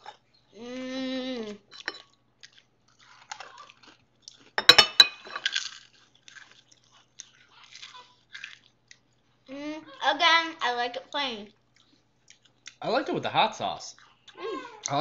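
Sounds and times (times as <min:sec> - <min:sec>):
crisps being chewed: 0:01.5 - 0:04.6, 0:05.4 - 0:09.3, 0:11.7 - 0:12.8.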